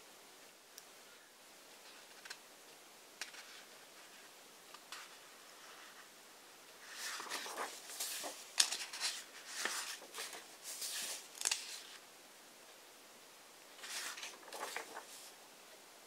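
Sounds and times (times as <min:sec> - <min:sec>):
paper swishing and rustling: 0:06.8 - 0:12.0, 0:13.8 - 0:15.4
pages flicking over: 0:06.9 - 0:12.0, 0:13.8 - 0:15.3.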